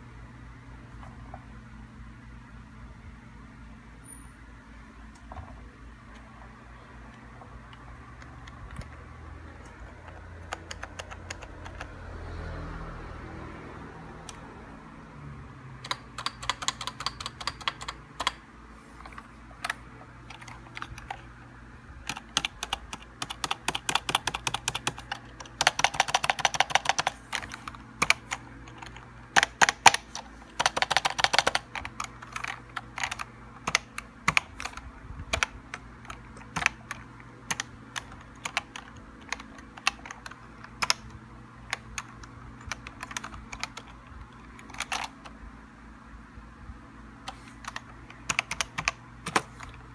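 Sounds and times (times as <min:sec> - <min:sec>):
keyboard key clicks: 0:22.1 - 0:44.0, 0:44.6 - 0:45.2, 0:47.3 - 0:49.8.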